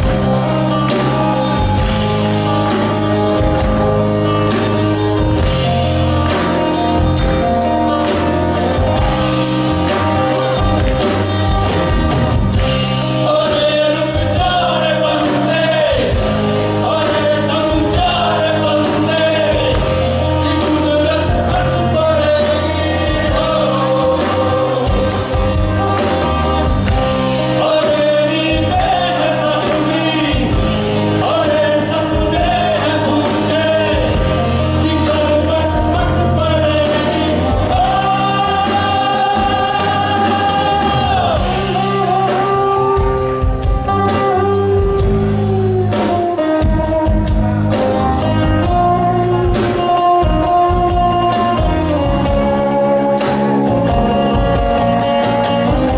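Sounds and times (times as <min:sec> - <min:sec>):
electric bass guitar: 0:00.0 - 0:55.9
live band playing: 0:00.0 - 0:55.9
man singing: 0:12.9 - 0:44.1.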